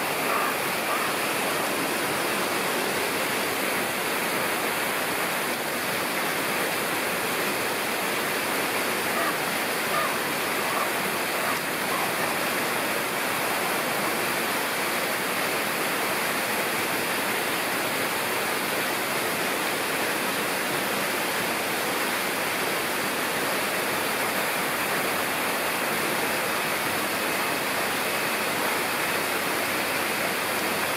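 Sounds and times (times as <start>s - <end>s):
running water rushing: 0.0s - 30.9s.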